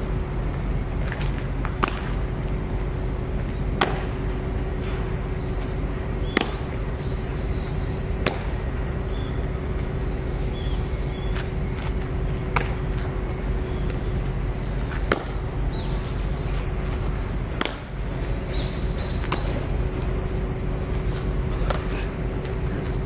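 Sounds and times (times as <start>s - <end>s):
low outdoor rumble: 0.0s - 23.0s
small birds chirping: 3.5s - 23.0s
baseball smacking into leather glove: 6.3s - 6.6s.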